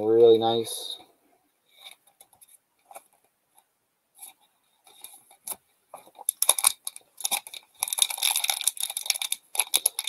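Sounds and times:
cards clicking and rustling: 0:04.3 - 0:10.0
foil wrapper crinkling: 0:04.9 - 0:10.0.

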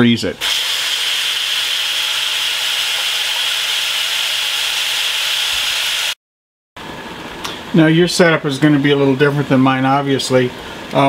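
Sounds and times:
sink sprayer water pattering: 0:00.4 - 0:06.2.

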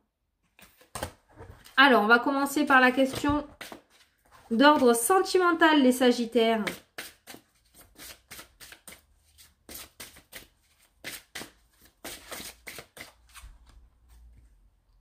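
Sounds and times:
cards being shuffled: 0:06.6 - 0:14.3.

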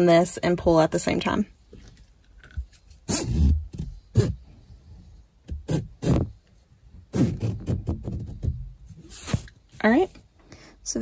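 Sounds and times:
strap pulled through buckle: 0:02.4 - 0:04.4
rustling and knocking handling: 0:05.4 - 0:10.3.

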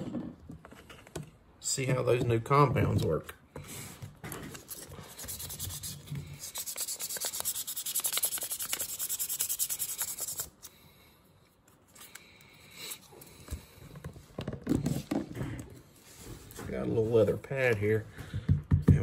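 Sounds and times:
sandpaper rubbing on steel: 0:04.7 - 0:10.5.

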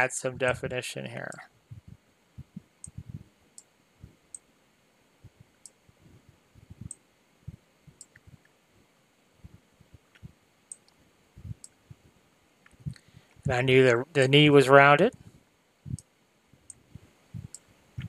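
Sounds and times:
soft low thumps: 0:01.6 - 0:03.4, 0:05.2 - 0:08.5, 0:11.3 - 0:12.2, 0:15.8 - 0:18.0.

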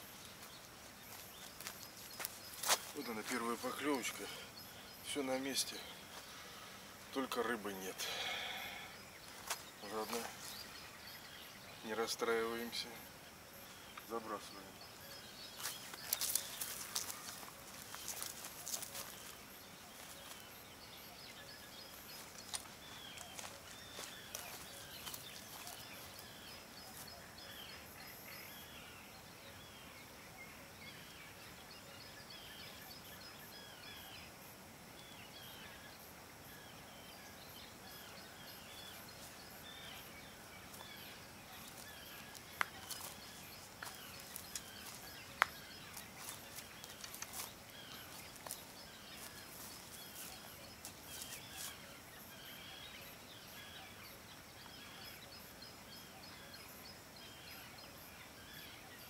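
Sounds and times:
birds chirping: 0:00.0 - 0:59.0
low background noise: 0:00.0 - 0:59.0.

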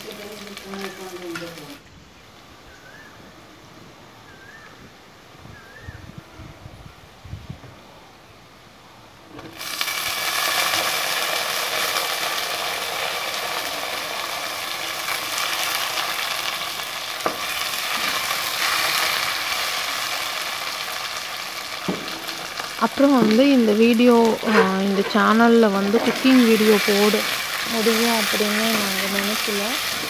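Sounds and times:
vegetables sizzling in oil: 0:00.0 - 0:01.8, 0:09.4 - 0:30.0.

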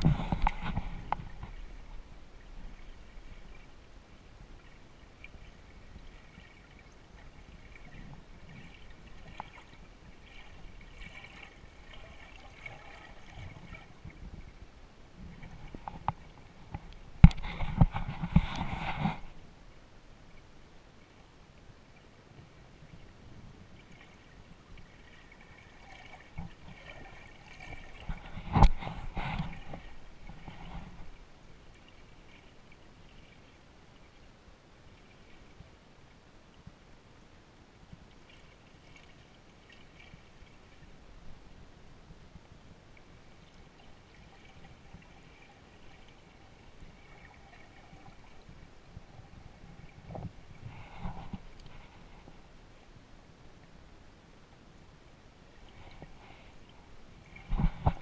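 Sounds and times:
water sloshing: 0:00.0 - 0:19.4, 0:22.9 - 0:34.2, 0:43.0 - 0:52.4
muffled underwater rumble: 0:00.0 - 0:58.0.

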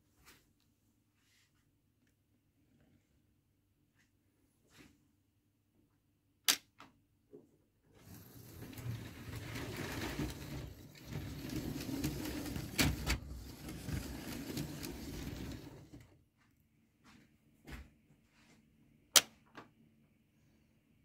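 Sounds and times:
toy train motor and wheel rumble: 0:08.0 - 0:16.1.

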